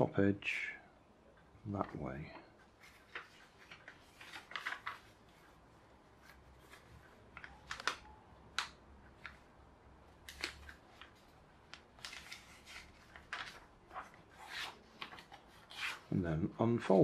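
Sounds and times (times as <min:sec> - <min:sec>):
paper being folded and creased: 0:02.6 - 0:09.5, 0:10.2 - 0:16.2.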